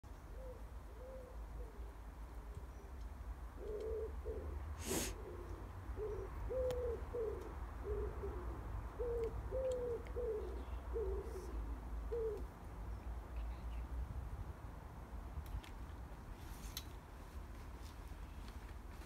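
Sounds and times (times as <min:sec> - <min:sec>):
pigeon cooing: 0:00.3 - 0:01.9, 0:03.6 - 0:12.5.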